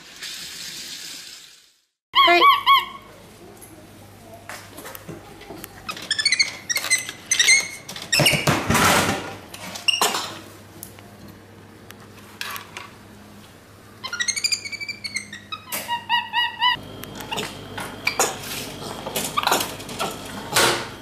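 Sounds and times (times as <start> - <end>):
monkey squeaky calls: 2.2 - 3.1, 5.9 - 7.7, 14.0 - 17.4.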